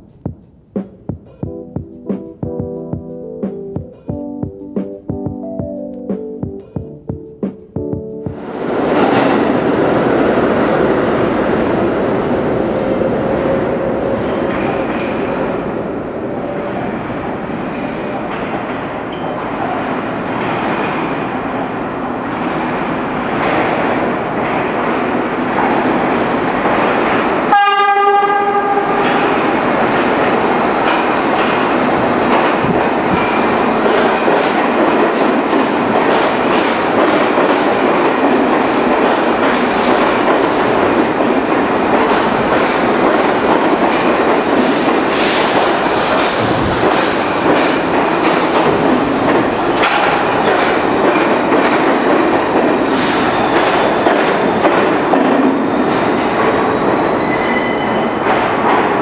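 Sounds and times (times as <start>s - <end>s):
subway train rumble: 0.0s - 59.0s
train horn: 27.5s - 29.3s.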